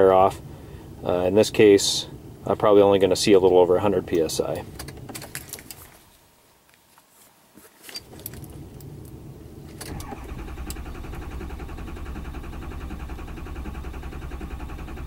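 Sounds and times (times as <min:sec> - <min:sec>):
clicks and rattles: 0:04.5 - 0:05.9
diesel engine cranking: 0:08.0 - 0:15.0.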